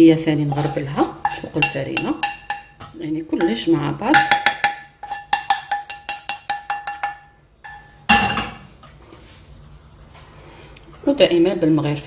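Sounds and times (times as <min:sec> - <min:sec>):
spoon scraping: 0:00.4 - 0:10.4
spoon knocking pan: 0:00.5 - 0:09.0
metal spoon clinking on sieve: 0:00.5 - 0:09.2.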